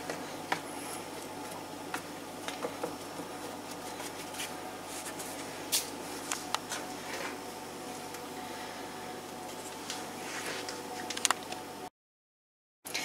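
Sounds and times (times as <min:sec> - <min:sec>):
dough patting and squishing: 0:00.0 - 0:07.4.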